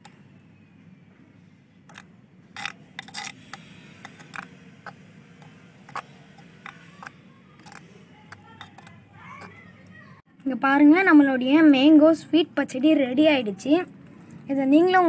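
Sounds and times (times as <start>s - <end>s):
metal spoon scraping clay pot: 1.9s - 9.7s.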